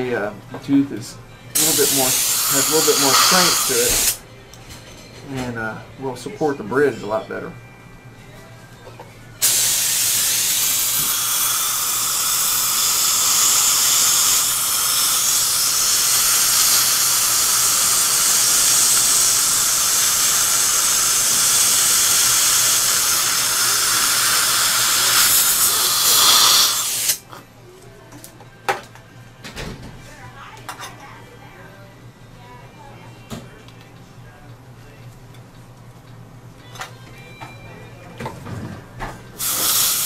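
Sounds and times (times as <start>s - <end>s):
dental spray and suction hissing: 1.6s - 4.2s, 9.4s - 27.2s, 39.4s - 40.0s.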